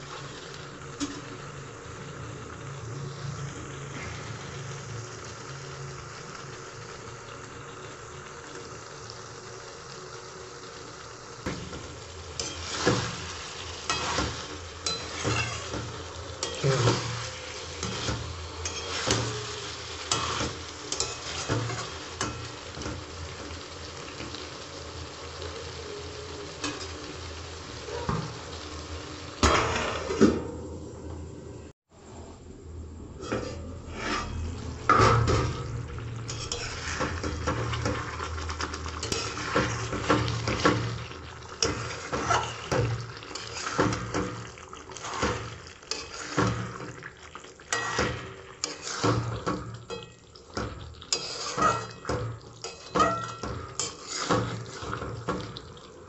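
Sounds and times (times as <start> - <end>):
curry sizzling in a wok: 0.0 - 56.0
stirring scraping against pan: 12.4 - 23.0, 33.2 - 55.6.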